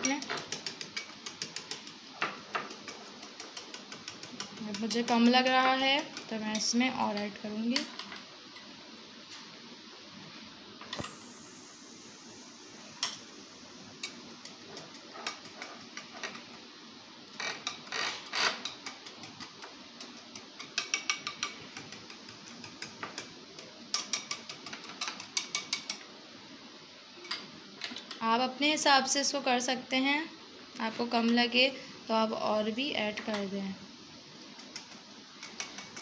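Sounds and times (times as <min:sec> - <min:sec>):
whisk clicking against glass bowl: 0:00.0 - 0:06.8, 0:14.0 - 0:16.6, 0:17.4 - 0:26.0, 0:34.4 - 0:36.0.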